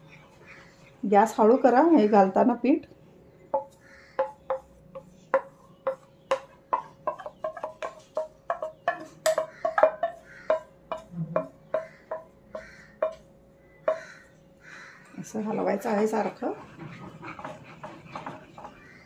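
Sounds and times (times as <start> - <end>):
wooden spatula knocking metal pan: 3.5 - 13.3, 13.9 - 14.2.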